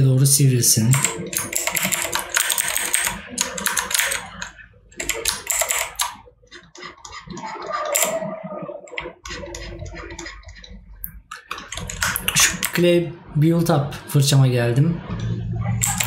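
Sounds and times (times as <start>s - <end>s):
keyboard and mouse clicking: 0.9s - 12.8s, 15.2s - 16.0s.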